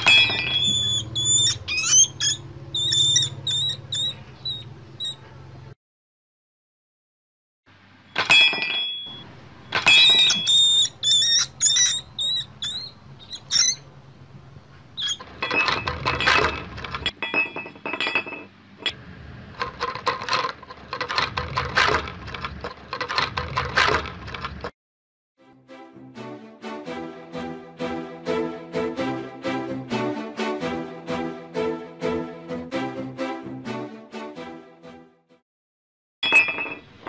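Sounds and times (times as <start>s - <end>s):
mouse scrabbling in trap: 0.0s - 5.2s, 9.7s - 13.8s, 15.0s - 17.1s
mouse squeaking: 0.0s - 5.4s, 9.8s - 13.9s, 15.0s - 16.5s.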